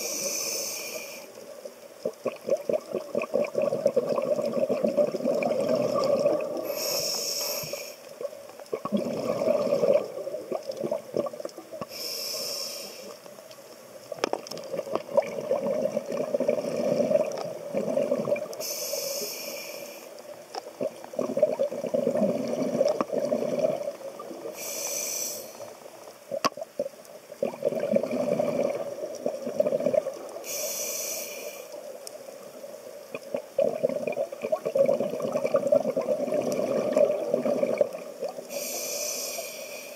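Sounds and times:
hissing regulator inhale: 0:00.0 - 0:01.5, 0:06.6 - 0:08.1, 0:11.8 - 0:13.3, 0:18.6 - 0:20.3, 0:24.5 - 0:25.8, 0:30.4 - 0:31.9, 0:38.4 - 0:39.9
bubbling exhaled air: 0:02.2 - 0:08.0, 0:08.7 - 0:13.2, 0:14.7 - 0:19.9, 0:20.8 - 0:25.7, 0:27.4 - 0:31.3, 0:33.2 - 0:39.9.

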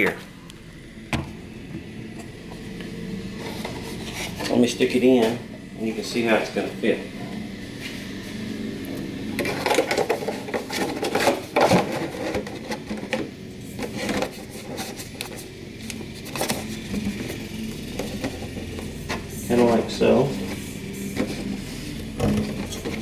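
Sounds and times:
plastic scraping and rustling: 0:03.3 - 0:05.4, 0:09.4 - 0:23.0.

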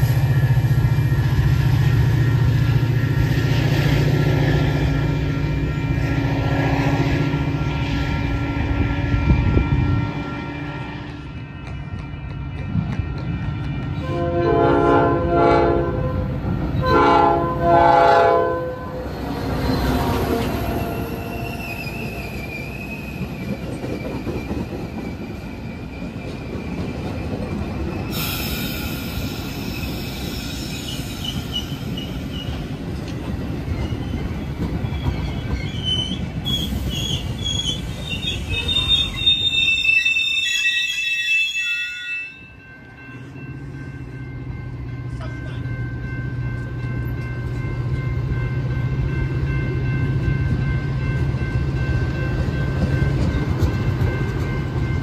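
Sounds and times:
train rumble: 0:00.0 - 0:40.2, 0:42.5 - 0:55.0
train horn blasts: 0:05.1 - 0:12.8, 0:14.0 - 0:19.1
high wheel squeal: 0:19.7 - 0:27.2, 0:27.9 - 0:32.6, 0:33.6 - 0:42.4.

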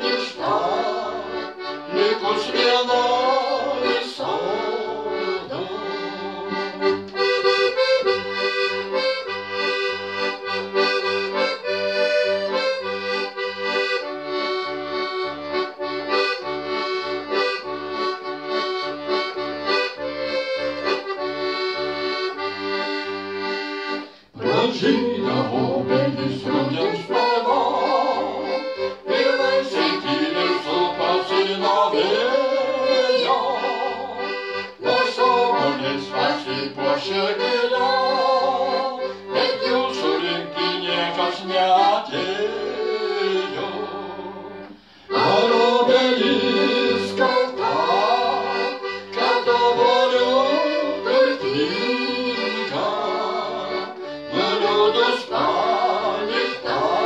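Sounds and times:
piano accordion playing: 0:00.0 - 0:57.0
man and woman singing duet: 0:00.1 - 0:06.7, 0:24.4 - 0:34.2, 0:34.8 - 0:44.4, 0:45.2 - 0:57.0.

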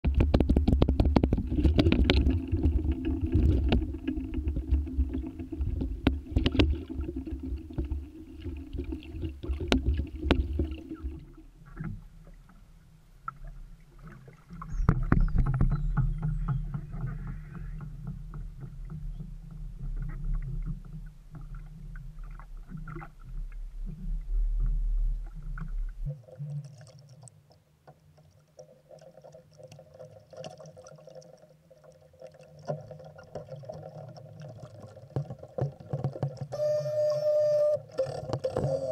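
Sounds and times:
hull knocking and rattling: 0:14.8 - 0:19.2
small boat motor humming: 0:36.5 - 0:38.9.

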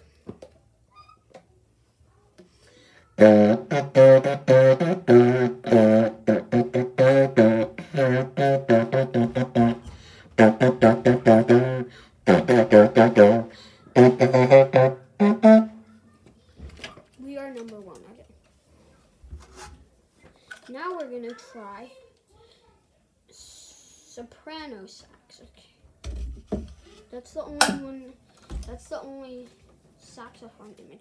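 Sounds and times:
saxophone playing low short notes: 0:03.2 - 0:15.9.

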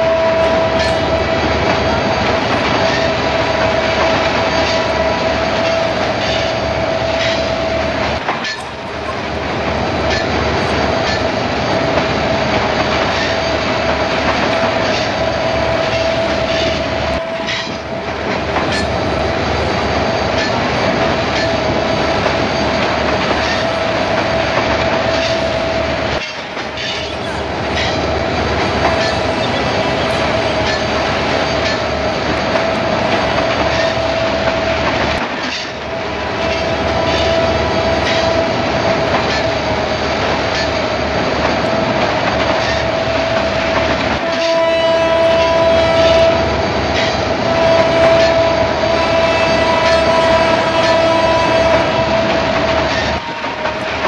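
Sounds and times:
multi-note train horn: 0:00.0 - 0:08.6, 0:14.5 - 0:18.7, 0:36.4 - 0:39.4, 0:42.6 - 0:54.0
diesel locomotive engine whine: 0:00.0 - 0:54.0.

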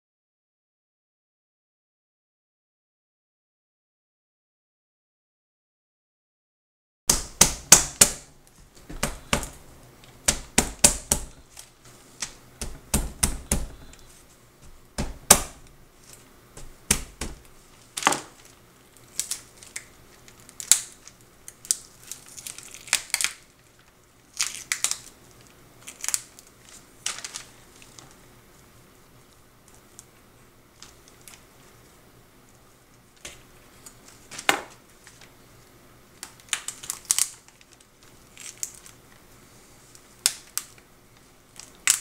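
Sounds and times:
paper crinkling: 0:15.6 - 0:32.0, 0:33.2 - 0:42.0
lobster shell cracking: 0:19.1 - 0:25.2, 0:36.2 - 0:39.0.

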